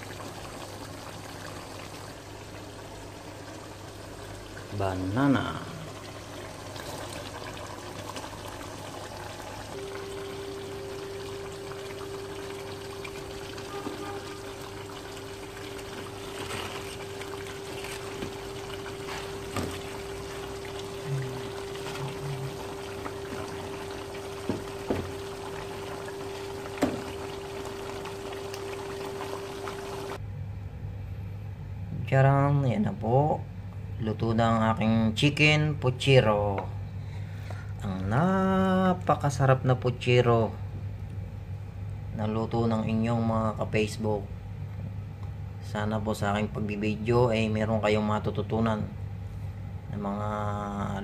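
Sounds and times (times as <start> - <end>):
stew bubbling in a pot: 0.0 - 30.2
steady hum: 0.0 - 39.1.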